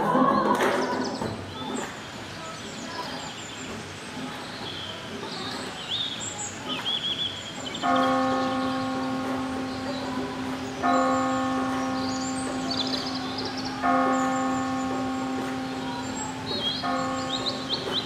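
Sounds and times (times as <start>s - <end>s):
songbirds chirping: 0.6s - 18.0s
church bell ringing: 7.8s - 18.0s.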